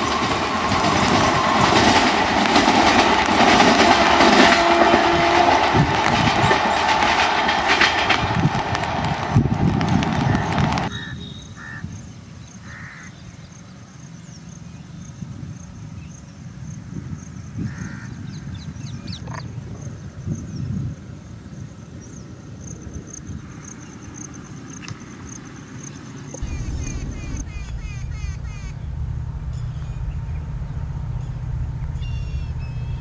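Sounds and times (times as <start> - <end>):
low wind rumble: 0.0 - 10.9, 26.4 - 33.0
passing train noise: 0.0 - 11.2, 25.3 - 33.0
crows cawing: 10.3 - 11.9, 12.6 - 13.2
pulsing high insect chirr: 26.4 - 33.0.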